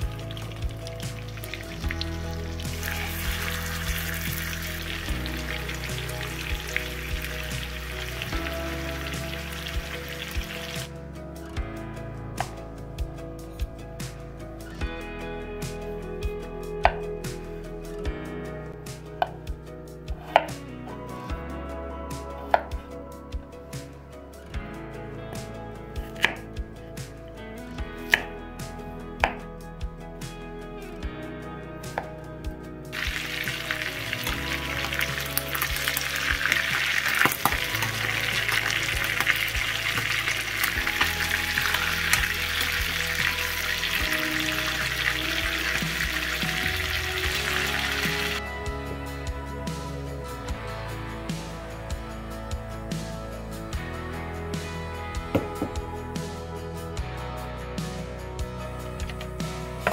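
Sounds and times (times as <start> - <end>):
chicken sizzling in hot oil: 0.0 - 10.9, 32.9 - 48.4
background music: 0.0 - 59.9.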